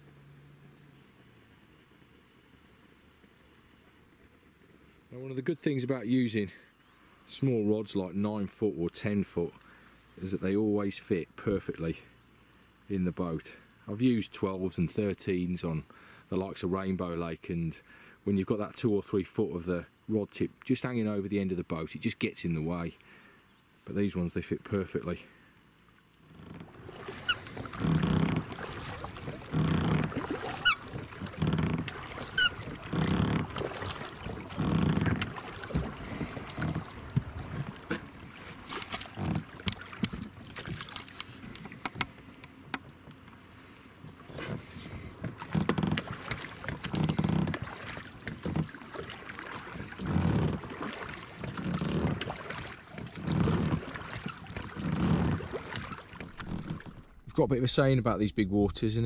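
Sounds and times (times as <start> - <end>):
water slapping against boat hull: 26.3 - 57.2.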